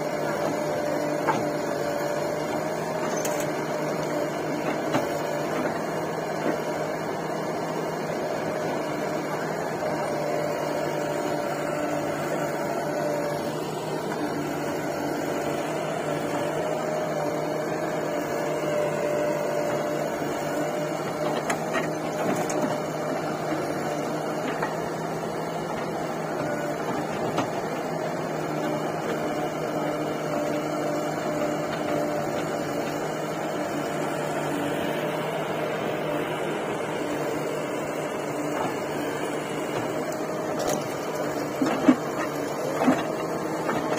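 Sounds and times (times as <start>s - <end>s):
diesel engines running: 0.0s - 43.9s
faint knocks of backhoe: 0.2s - 1.7s, 2.3s - 6.9s, 8.6s - 27.8s, 37.0s - 43.9s.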